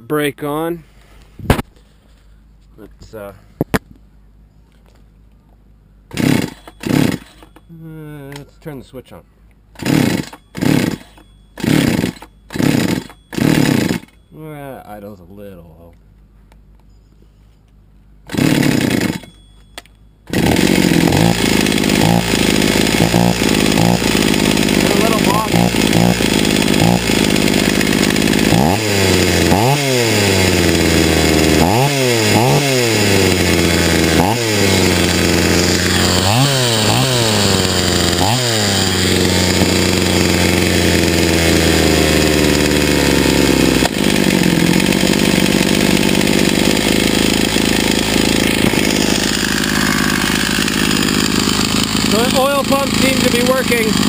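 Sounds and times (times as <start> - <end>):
chainsaw revving: 6.1 - 7.6, 9.8 - 14.2, 18.3 - 19.3, 20.3 - 54.0.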